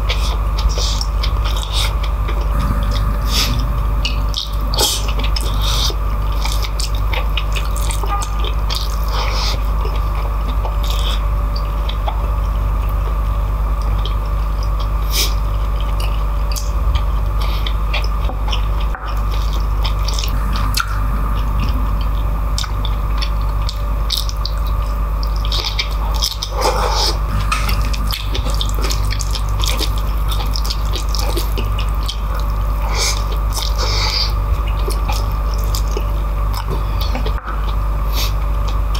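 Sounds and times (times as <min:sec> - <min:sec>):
low hum: 0:02.3 - 0:10.9, 0:19.3 - 0:38.0.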